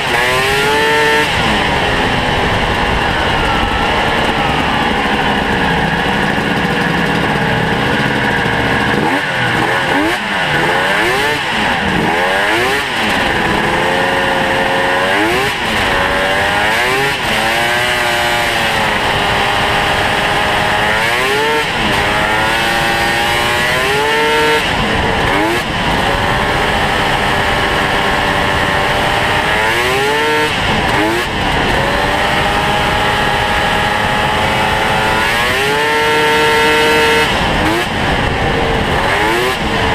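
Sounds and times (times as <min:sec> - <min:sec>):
two-stroke snowmobile engine revving: 0:00.0 - 0:39.9.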